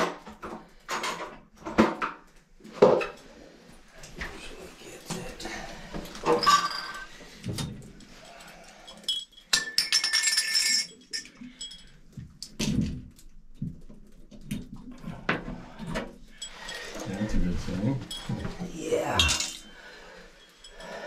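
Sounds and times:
metal hand tools clinking: 0:06.3 - 0:07.2, 0:08.0 - 0:12.0, 0:18.0 - 0:21.0
metallic jingling: 0:16.3 - 0:21.0.

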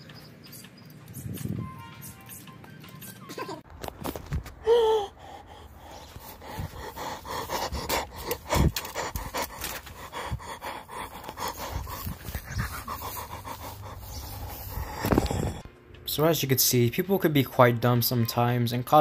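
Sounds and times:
person panting: 0:04.6 - 0:15.7.

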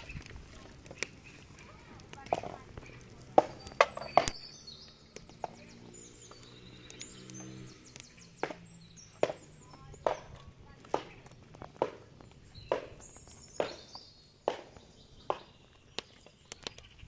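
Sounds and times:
sharp chopping knocks: 0:08.4 - 0:12.0, 0:12.7 - 0:15.5.

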